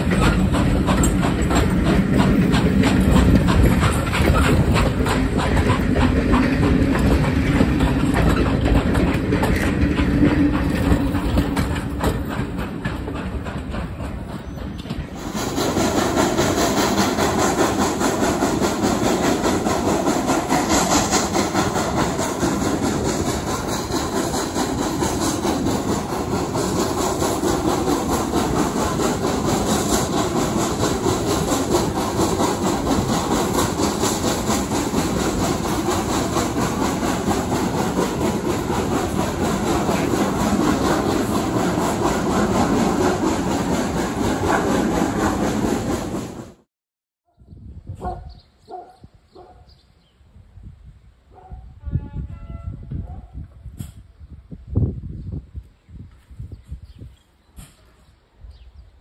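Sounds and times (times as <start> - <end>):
wheels running on rails: 0.0 - 46.6
steam locomotive working: 0.0 - 46.7.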